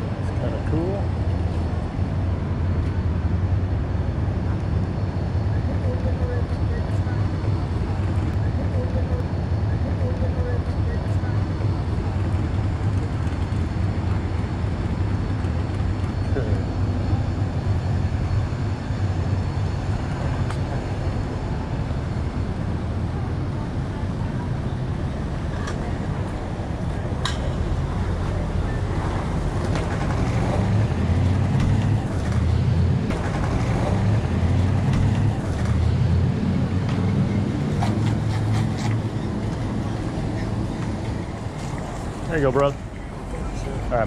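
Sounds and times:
low traffic rumble: 0:00.0 - 0:44.0.

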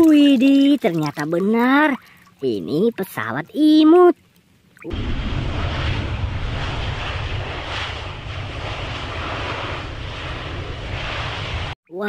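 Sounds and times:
jet engines running: 0:04.9 - 0:11.8.

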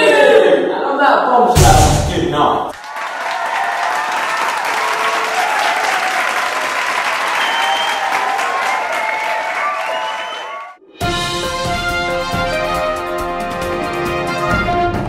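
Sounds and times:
crowd applauding: 0:02.7 - 0:10.8.

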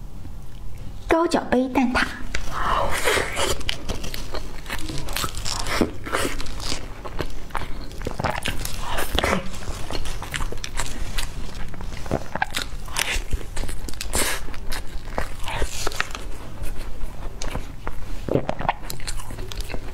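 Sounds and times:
biting and chewing pastry: 0:02.3 - 0:19.9
crisp pastry crackles: 0:03.1 - 0:17.8.

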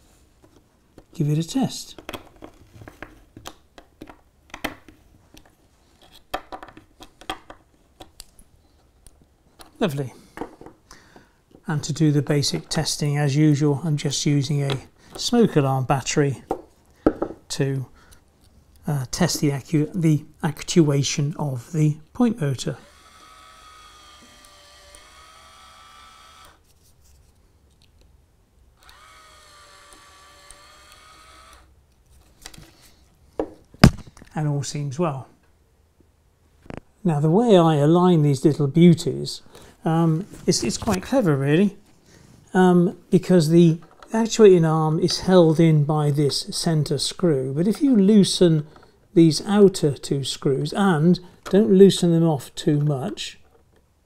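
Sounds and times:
small screwdriver driving screws: 0:22.8 - 0:26.6, 0:28.8 - 0:31.7
small electric motor whining: 0:22.8 - 0:26.7, 0:28.8 - 0:31.7
plastic casing handled: 0:33.4 - 0:34.3.

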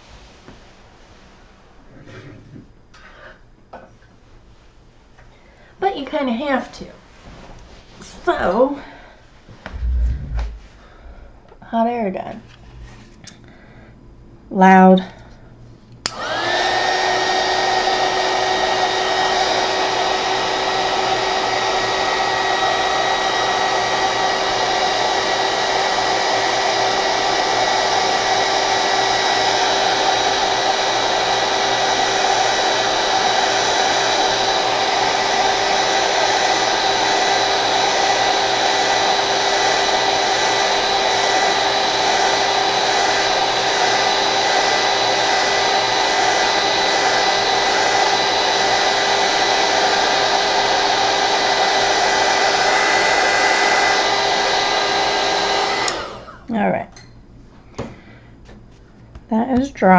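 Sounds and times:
heat gun blowing air: 0:16.0 - 0:56.4.

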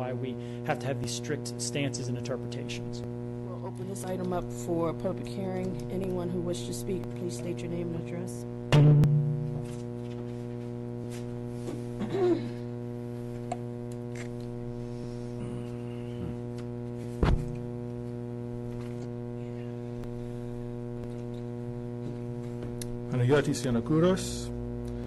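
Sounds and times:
electrical mains hum: 0:00.0 - 0:25.0
sharp thump: 0:08.7 - 0:09.8, 0:17.2 - 0:17.5.

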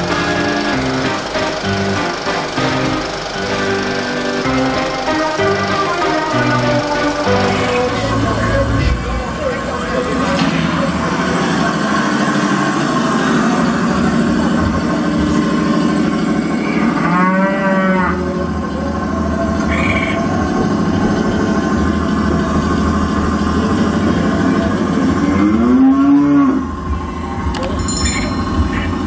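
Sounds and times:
steady drone: 0:00.0 - 0:29.0
cattle mooing: 0:16.8 - 0:18.4, 0:25.2 - 0:26.6.

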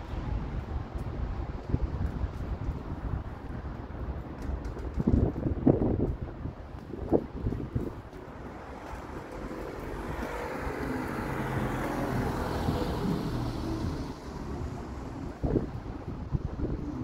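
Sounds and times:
wind buffeting microphone: 0:00.0 - 0:17.0
vehicle driving past: 0:09.0 - 0:15.5.

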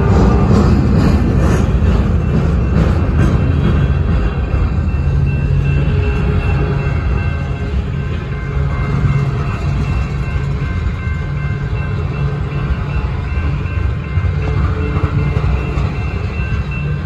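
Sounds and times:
train wheels rumbling on rails: 0:00.0 - 0:17.0
crossing signal bell ringing: 0:01.3 - 0:17.0.

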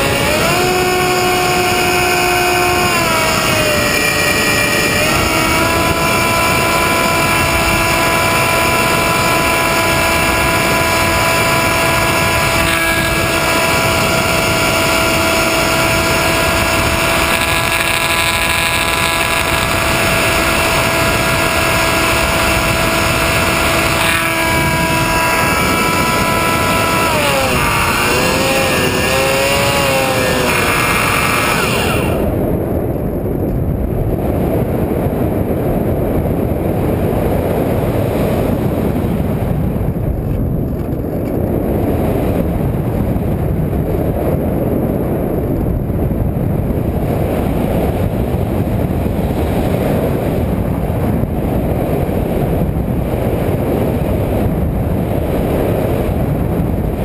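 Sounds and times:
model airplane motor whining: 0:00.0 - 0:32.5, 0:47.0 - 0:52.7
wind rushing over microphone: 0:00.0 - 0:57.0.

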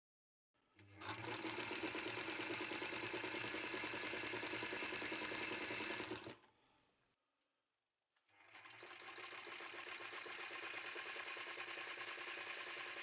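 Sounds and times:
sewing machine stitching: 0:00.8 - 0:06.5, 0:08.3 - 0:13.0.

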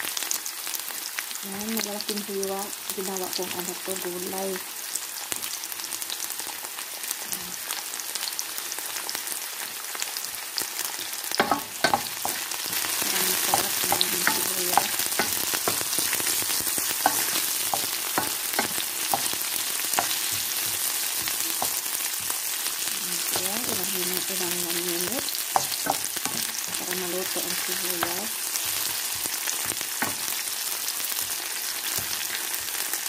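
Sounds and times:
onions sizzling in oil: 0:00.0 - 0:33.0
spatula scraping a pan: 0:11.4 - 0:22.4.

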